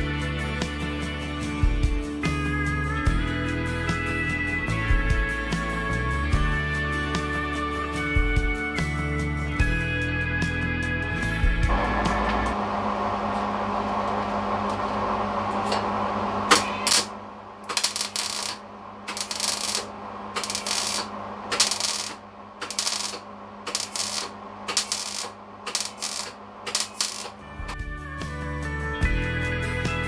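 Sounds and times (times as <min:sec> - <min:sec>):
welder arc crackling: 0:16.5 - 0:27.5.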